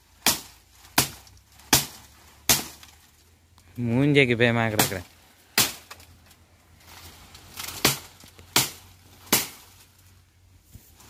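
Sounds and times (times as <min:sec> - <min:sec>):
knocks among dry palm stalks: 0:00.0 - 0:03.3, 0:04.6 - 0:11.0.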